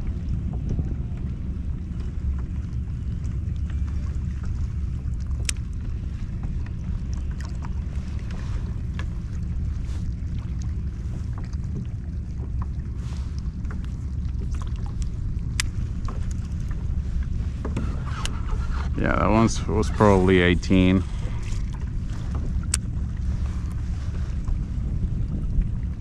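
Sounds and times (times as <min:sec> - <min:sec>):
wind rumbling on microphone: 0:00.0 - 0:26.0.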